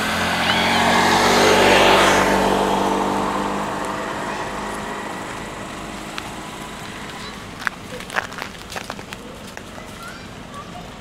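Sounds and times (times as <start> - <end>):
vehicle passing by: 0.0 - 8.5.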